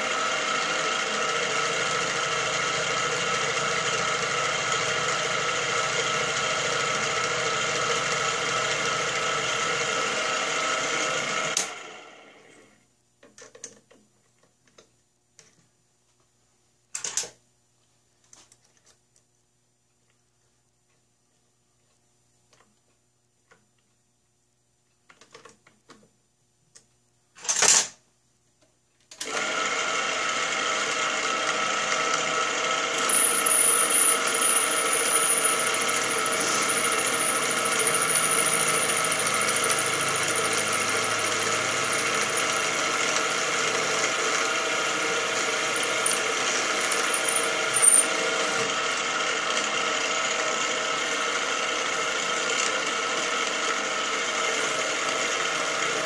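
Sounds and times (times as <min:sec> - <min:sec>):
mill spindle motor humming: 0:00.0 - 0:12.6, 0:29.2 - 0:56.0.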